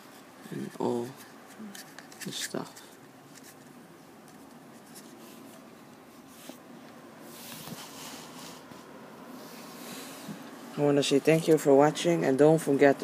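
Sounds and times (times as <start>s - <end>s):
paper card rustling: 0.0s - 6.6s.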